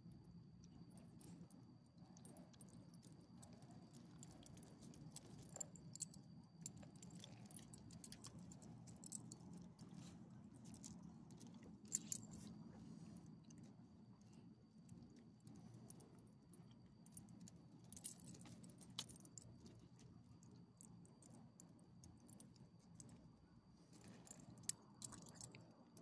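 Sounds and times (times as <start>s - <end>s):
low steady hum: 0.0s - 26.0s
dog collar tags clinking: 4.0s - 10.1s, 11.9s - 12.5s, 24.2s - 25.6s.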